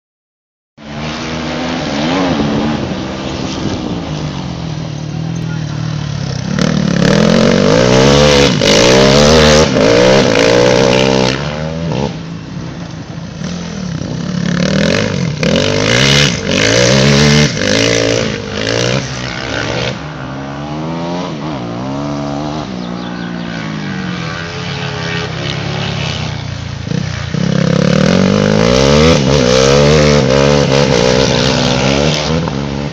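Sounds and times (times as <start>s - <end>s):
quad bike engines revving: 0.8s - 32.9s.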